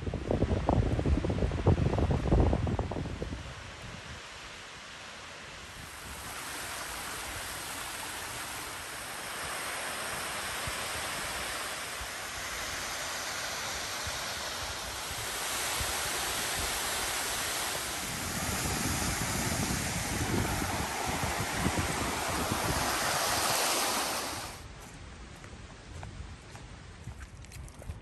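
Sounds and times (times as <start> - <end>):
wind buffeting microphone: 0.0 - 4.3, 5.7 - 28.0
waterfall rushing: 4.9 - 24.6.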